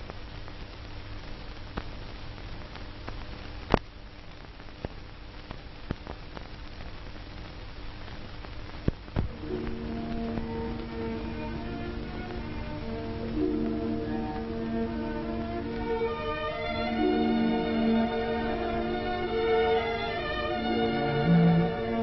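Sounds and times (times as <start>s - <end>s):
film soundtrack hiss: 0.0s - 22.0s
low hum: 20.1s - 22.0s.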